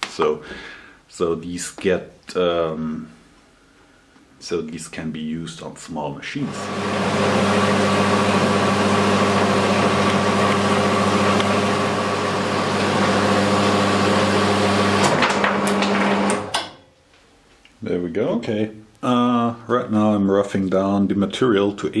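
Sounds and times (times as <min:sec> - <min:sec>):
clicks: 0:09.7 - 0:11.7.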